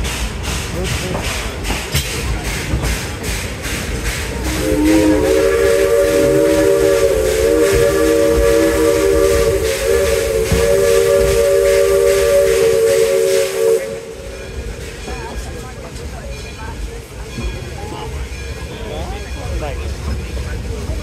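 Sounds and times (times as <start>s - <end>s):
moving train rumbling: 0.0s - 21.0s
steam whistle blowing: 4.4s - 14.7s.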